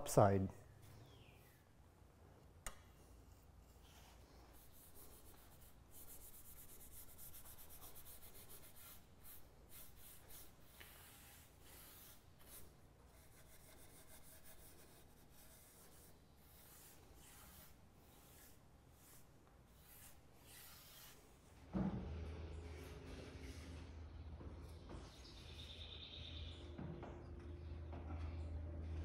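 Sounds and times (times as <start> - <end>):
brush swishing on wood: 3.8 - 13.8, 15.4 - 21.4.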